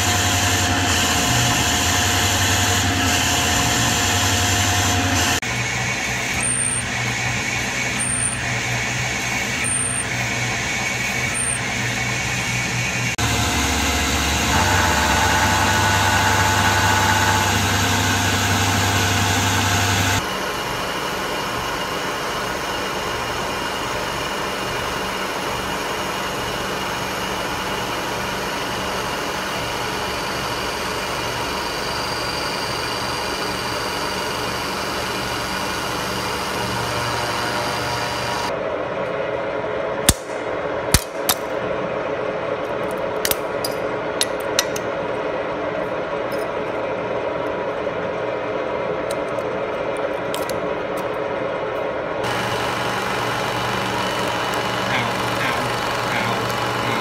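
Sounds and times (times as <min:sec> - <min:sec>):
face mill cutting plate: 0:00.0 - 0:20.2, 0:33.0 - 0:38.5, 0:52.2 - 0:57.0
milling machine cutting aluminum: 0:00.0 - 0:20.2, 0:31.9 - 0:38.5, 0:52.2 - 0:57.0.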